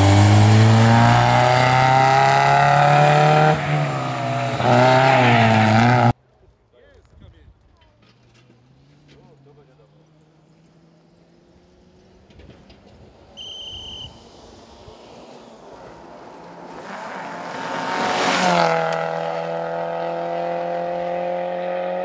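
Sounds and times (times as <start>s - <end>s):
rally car passing at speed: 0.0s - 6.2s, 14.1s - 22.0s
short shrill beep: 13.4s - 14.2s.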